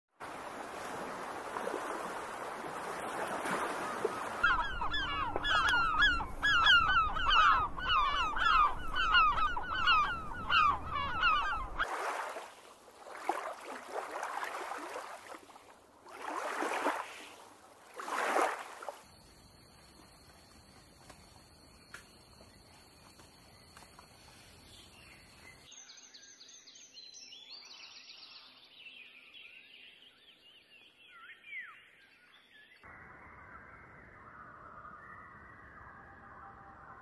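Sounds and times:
surf washing in: 0:00.2 - 0:05.5, 0:11.7 - 0:18.9
gulls calling: 0:00.9 - 0:12.5.

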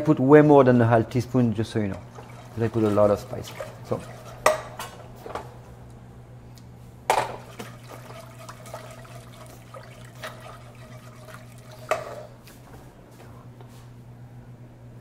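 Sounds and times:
sauce whisked in saucepan: 0:01.4 - 0:05.3, 0:07.4 - 0:12.4.

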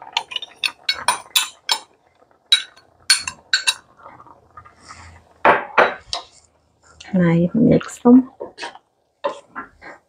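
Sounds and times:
metal spoon clinking on glass and pot: 0:00.2 - 0:01.9, 0:02.5 - 0:03.8.

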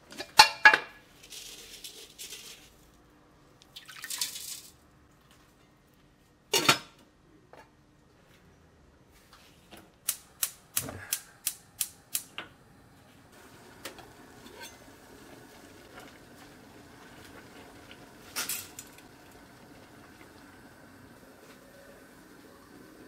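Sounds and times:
gas hob igniter clicking: 0:10.0 - 0:12.5.

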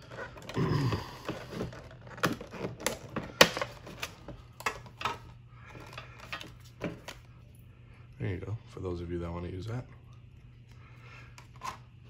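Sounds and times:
plastic packaging crackling: 0:00.0 - 0:07.2.

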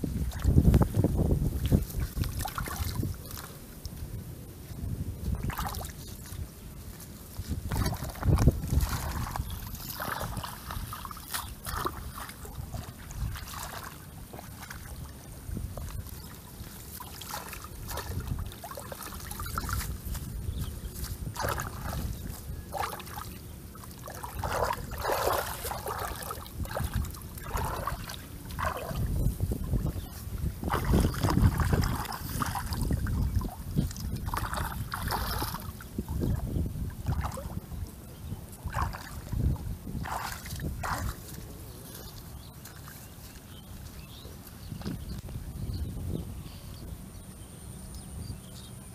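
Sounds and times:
wind rumble on microphone: 0:00.0 - 0:48.9
hands splashing in muddy water: 0:01.5 - 0:03.6, 0:05.3 - 0:06.4, 0:07.4 - 0:37.7, 0:38.6 - 0:43.6.

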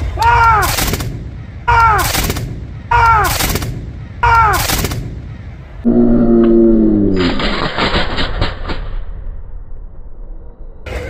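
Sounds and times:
musket shots: 0:00.0 - 0:05.5, 0:07.2 - 0:09.3
low held tone: 0:05.3 - 0:07.3.

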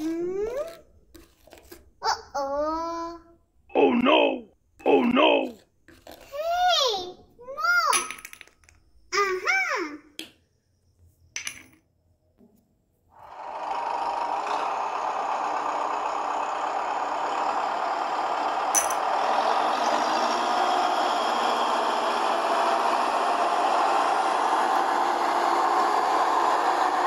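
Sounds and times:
rattling tractor engine: 0:13.2 - 0:27.0.

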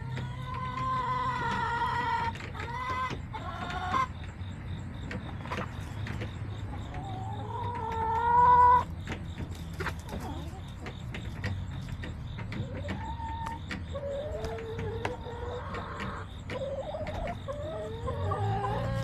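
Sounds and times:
hens calling softly: 0:05.1 - 0:19.0.

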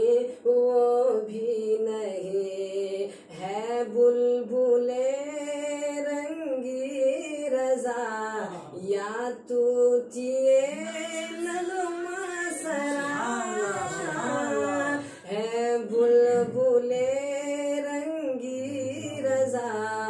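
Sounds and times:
man singing unaccompanied: 0:00.0 - 0:20.0
singer breathing: 0:15.0 - 0:15.3.

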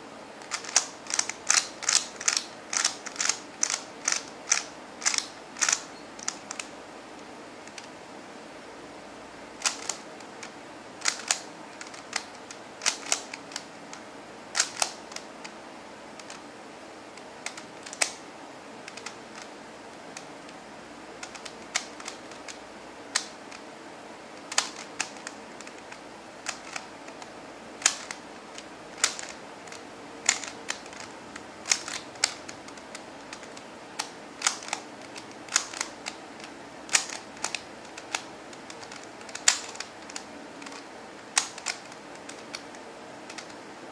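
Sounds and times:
plastic puzzle clicking: 0:00.4 - 0:06.7, 0:09.6 - 0:13.7, 0:14.6 - 0:15.6, 0:16.2 - 0:16.4, 0:17.2 - 0:18.2, 0:18.9 - 0:19.5, 0:21.2 - 0:23.6, 0:24.4 - 0:43.6.

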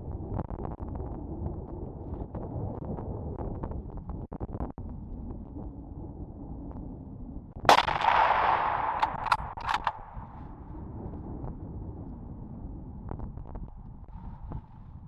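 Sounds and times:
wind: 0:00.0 - 0:15.0
short sharp clicks: 0:07.7 - 0:10.2
rifle shot: 0:07.7 - 0:10.4.

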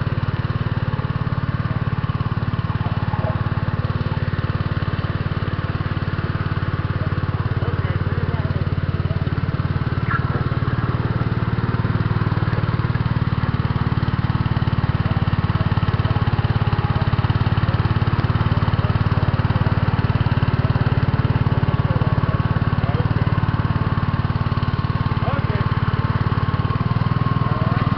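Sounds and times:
garden tractor engine running: 0:00.0 - 0:27.9.

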